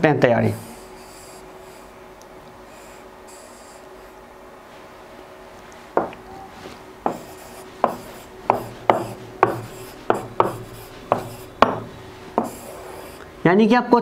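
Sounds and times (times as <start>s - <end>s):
stylus tapping on whiteboard: 6.0s - 6.2s, 7.0s - 12.7s.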